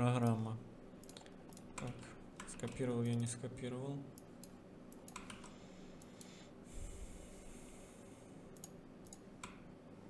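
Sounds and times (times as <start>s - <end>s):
mouse and keyboard clicks: 4.2s - 6.3s
breath on microphone: 5.6s - 8.3s.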